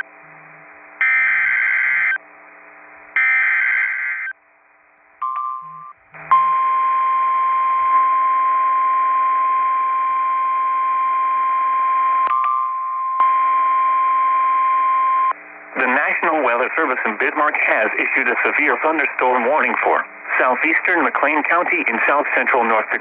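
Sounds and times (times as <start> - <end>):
steady warning alarm tone: 0.0 - 2.2, 3.2 - 4.4, 5.2 - 15.4.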